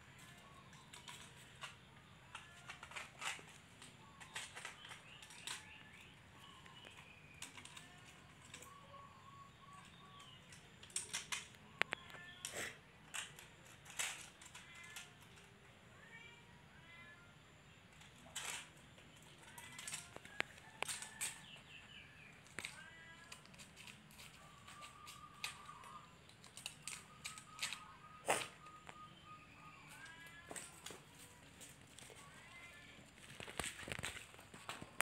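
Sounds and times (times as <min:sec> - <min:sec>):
small paws scuffing on concrete: 0:29.9 - 0:35.0.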